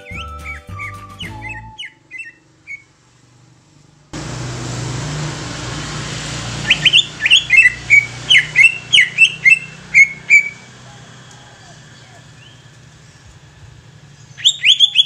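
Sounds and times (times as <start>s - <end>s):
bird chirps: 0.0s - 2.9s, 6.6s - 10.7s, 11.3s - 13.5s, 14.1s - 15.0s
low hum: 4.2s - 14.4s.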